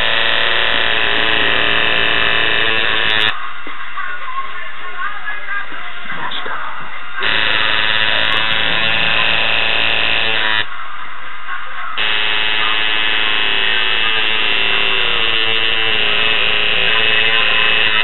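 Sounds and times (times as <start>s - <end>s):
tattoo machine buzzing: 0.0s - 3.4s, 7.2s - 10.7s, 12.0s - 18.0s.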